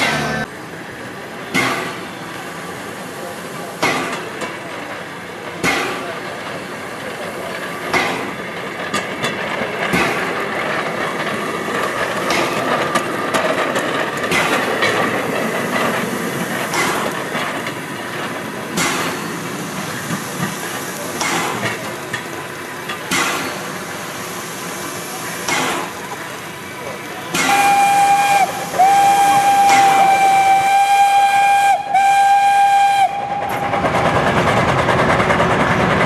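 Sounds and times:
rail trolley wheels rattling: 0.0s - 36.0s
wheels clacking over rail joints: 3.2s - 30.8s, 33.1s - 36.0s
steady hiss: 14.4s - 31.7s.

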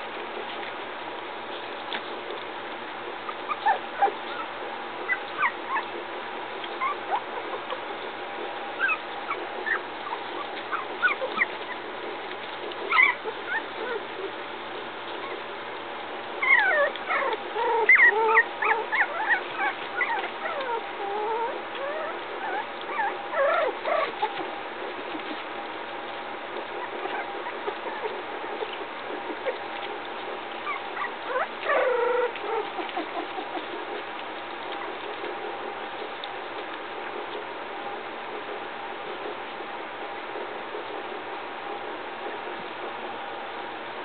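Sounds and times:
puppies whimpering and squeaking: 3.1s - 15.7s, 16.4s - 25.5s, 26.1s - 37.5s.

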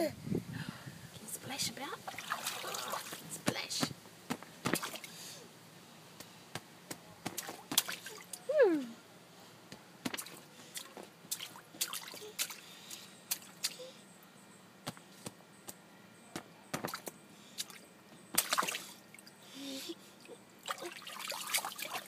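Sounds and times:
hands splashing water: 10.1s - 12.6s, 18.4s - 18.9s.

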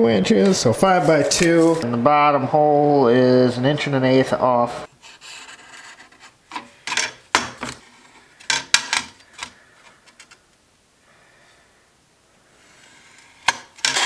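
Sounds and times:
metal square sliding on sheet metal: 12.6s - 14.0s.

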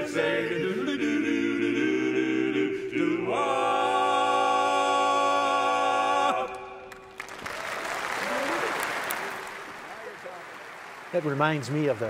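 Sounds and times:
male quartet singing a cappella: 0.0s - 6.9s
applause: 6.9s - 12.0s.

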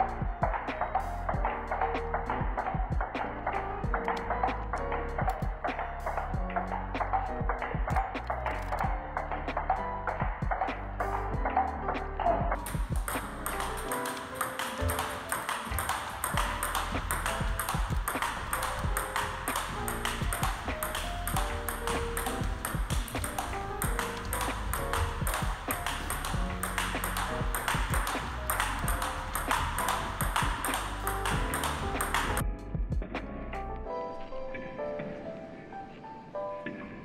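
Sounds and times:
background music with held notes: 0.0s - 37.0s
table tennis ball clicking: 12.6s - 32.4s.

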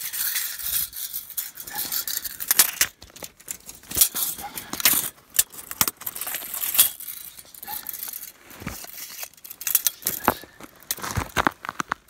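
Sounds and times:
clothing rustling against camera: 6.1s - 11.7s
hands crunching in snow: 8.3s - 8.9s.

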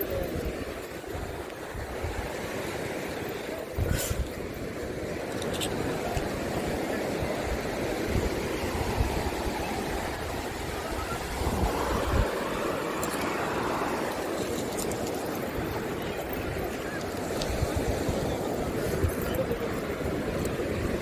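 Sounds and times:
sea surf washing: 0.0s - 21.0s
wind buffeting microphone: 0.0s - 21.0s.

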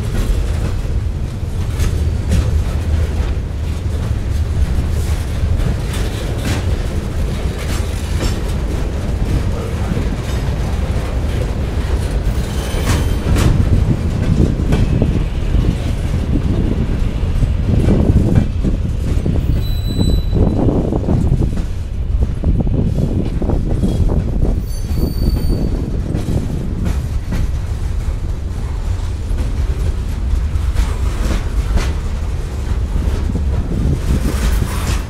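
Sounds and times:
freight train cars rumbling: 0.0s - 35.0s
high wheel squeals: 12.3s - 13.4s, 19.4s - 20.6s, 24.6s - 25.9s.

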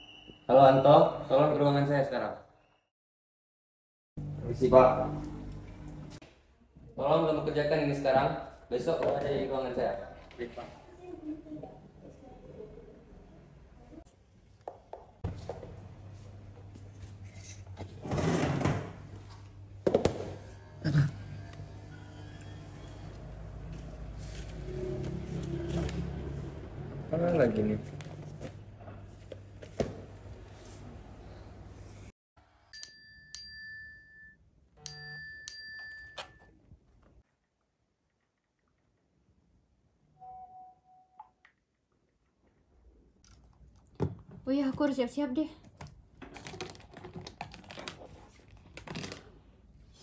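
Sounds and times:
bell-like chime notes: 32.7s - 36.4s.

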